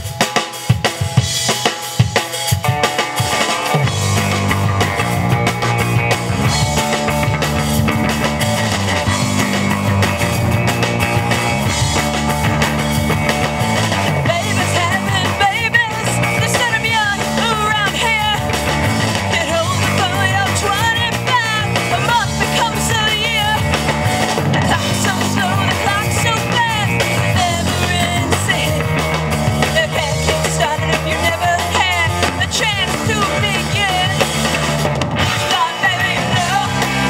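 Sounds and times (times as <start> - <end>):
live rock band playing: 0.0 - 37.0
woman singing lead: 14.0 - 37.0.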